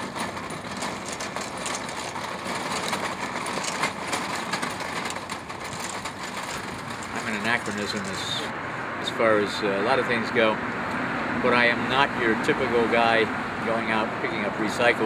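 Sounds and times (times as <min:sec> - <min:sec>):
small clicks and rattles: 0:00.0 - 0:08.5
steady mechanical noise: 0:00.0 - 0:10.1.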